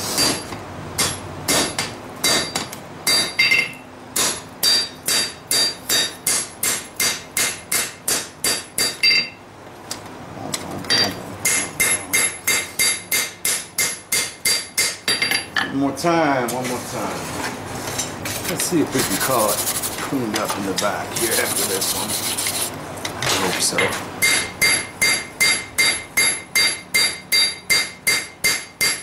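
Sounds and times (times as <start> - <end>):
hammer ringing on steel anvil: 0.2 - 9.4, 10.9 - 15.5, 24.2 - 29.0.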